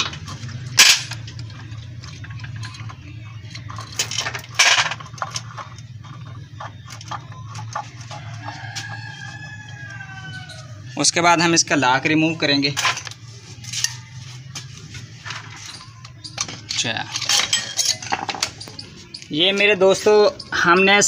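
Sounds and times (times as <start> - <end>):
metal engine parts clinking: 0.0 - 9.4, 11.6 - 21.0
rooster crowing: 7.9 - 11.0.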